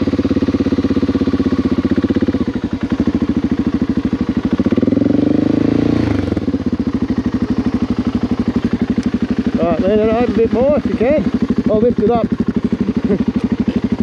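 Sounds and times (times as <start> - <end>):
motorcycle engine idling and revving: 0.0 - 14.0.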